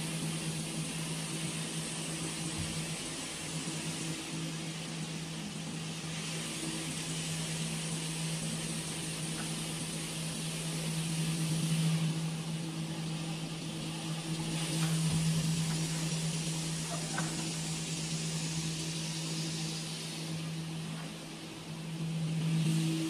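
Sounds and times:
water spray hissing: 6.1 - 23.0.

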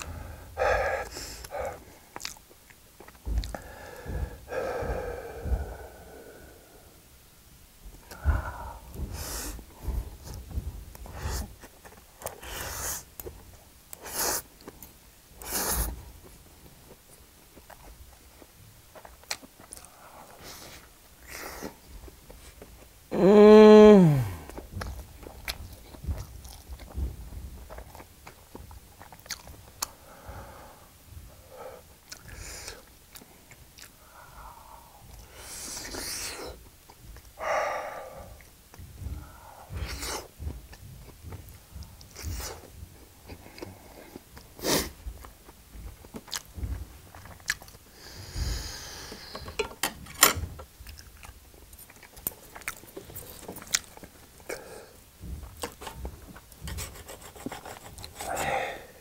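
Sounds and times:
person breathing: 0.0 - 2.2, 3.2 - 7.1, 8.0 - 11.7, 12.3 - 13.1, 23.2 - 24.7, 29.8 - 32.9, 33.9 - 36.7, 37.4 - 40.5, 47.9 - 49.7, 54.5 - 55.0, 57.6 - 59.0
person chewing: 0.0 - 6.5, 16.9 - 21.8, 24.0 - 27.0, 27.6 - 30.0, 32.0 - 49.4, 50.8 - 59.0.

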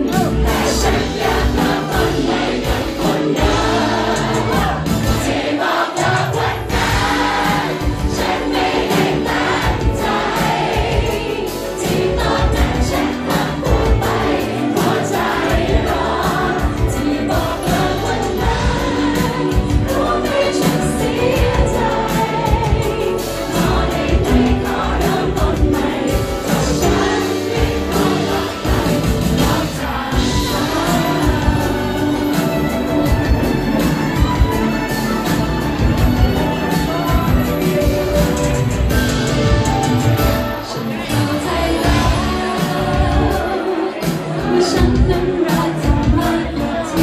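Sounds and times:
drums: 0.0 - 47.0
keyboard: 0.0 - 47.0
woman singing: 40.6 - 47.0.

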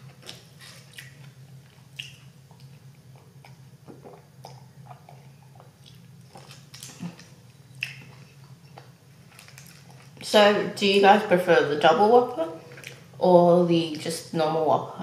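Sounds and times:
person chewing with wet smacks: 0.0 - 10.2, 12.6 - 13.2
faint steady low hum: 0.0 - 15.0.

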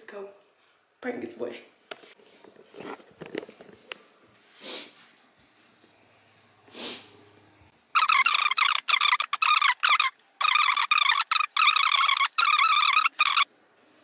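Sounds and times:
sniffs or breaths: 4.5 - 5.0, 6.7 - 7.2.

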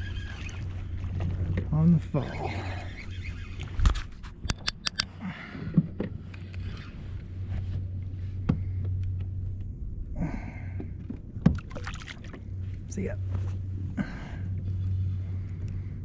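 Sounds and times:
steady low hum: 0.0 - 16.0
sharp clicks and knocks: 3.9 - 5.1.

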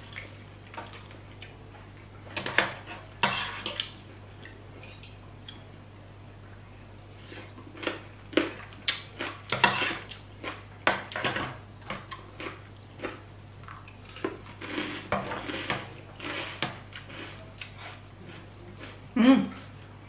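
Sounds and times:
steady low hum: 0.0 - 20.0
cutlery scraping a plate: 2.3 - 3.8, 8.4 - 10.1, 10.9 - 12.5, 14.2 - 18.0
chewing: 12.1 - 19.7.

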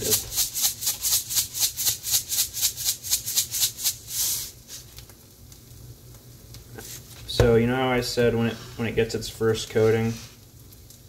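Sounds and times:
salt shaker shaking: 0.0 - 5.0.

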